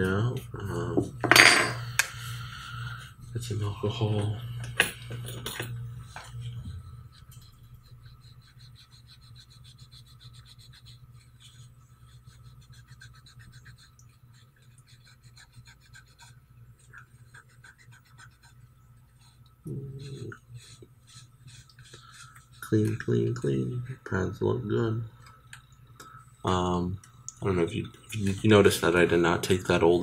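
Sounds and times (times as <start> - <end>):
steady low hum: 0.0 - 30.0
scratchy scrubbing: 6.0 - 23.4.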